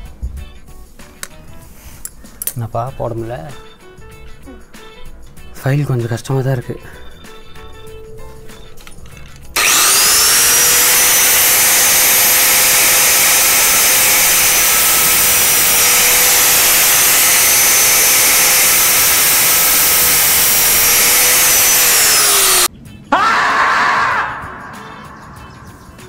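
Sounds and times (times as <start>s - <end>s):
angle grinder whining: 9.5s - 22.7s.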